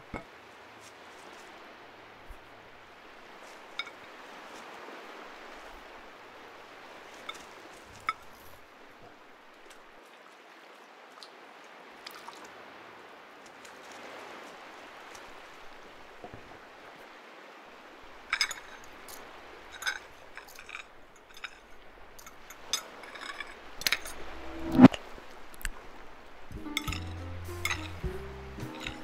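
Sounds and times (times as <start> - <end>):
small waves washing on shore: 0.0 - 28.0
knife and fork clinking on plate: 26.7 - 28.0.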